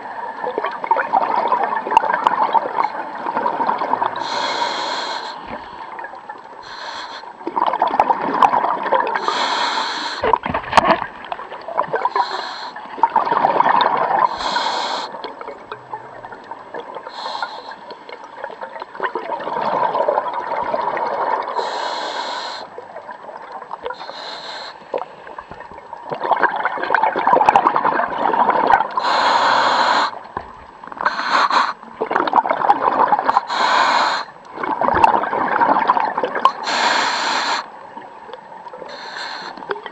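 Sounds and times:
exhaled bubbles rushing: 0.4s - 4.2s, 7.5s - 9.2s, 12.9s - 14.4s, 18.3s - 21.6s, 25.7s - 29.0s, 31.9s - 33.4s, 34.5s - 36.6s
regulator breathing hiss: 4.2s - 5.8s, 6.6s - 7.4s, 9.2s - 10.2s, 12.1s - 12.9s, 14.3s - 15.2s, 17.1s - 17.9s, 21.6s - 22.7s, 24.0s - 25.0s, 29.0s - 30.2s, 31.0s - 31.8s, 33.4s - 34.4s, 36.6s - 37.7s, 38.9s - 39.7s.

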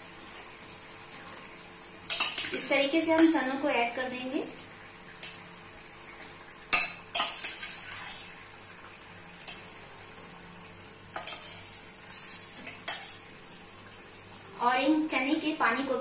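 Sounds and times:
light sizzling: 0.0s - 16.0s
metal ladle scraping pan: 11.2s - 13.2s.

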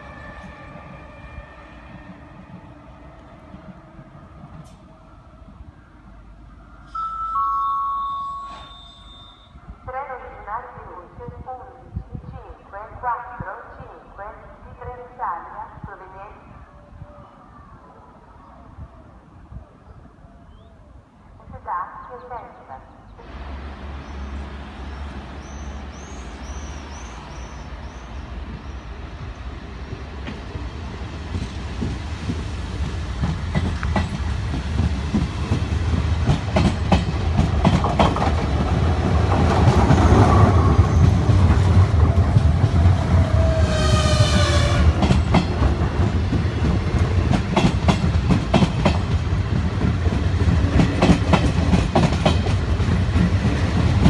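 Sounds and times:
train rolling past: 0.0s - 10.4s, 23.2s - 54.0s
brief high tone: 6.8s - 9.7s
wheels clacking over rail joints: 31.3s - 42.9s.

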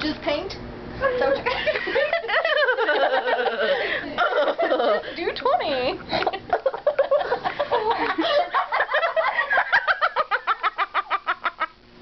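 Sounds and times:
girls laughing hysterically: 1.4s - 5.2s, 6.2s - 11.8s.

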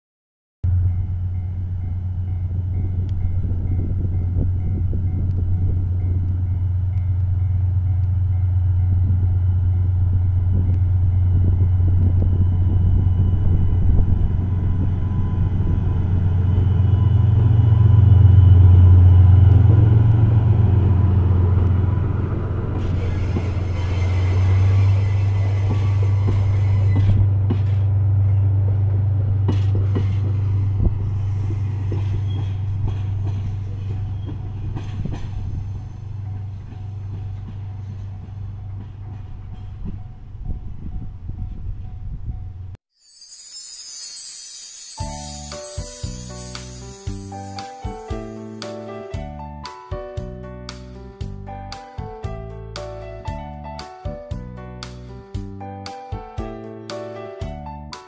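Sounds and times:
locomotive engine drone: 0.6s - 42.8s.

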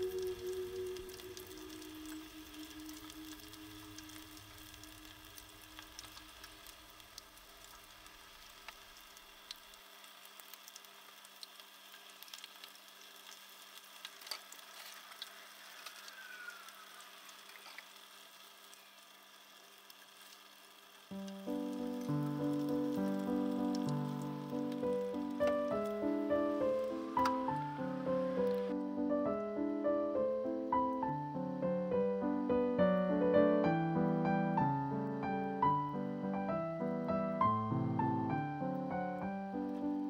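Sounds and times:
oil crackling pops: 0.0s - 16.2s, 17.2s - 28.7s
fish cakes sizzling in oil: 0.0s - 28.7s.

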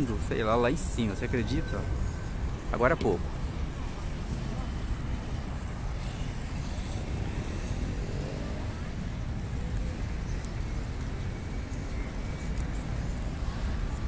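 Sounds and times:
road traffic rumble: 0.0s - 14.0s
faint voices: 4.0s - 14.0s.

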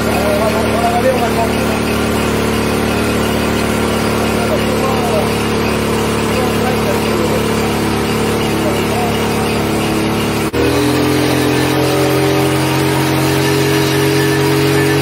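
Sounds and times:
two-stroke moped engine running: 0.0s - 15.0s.

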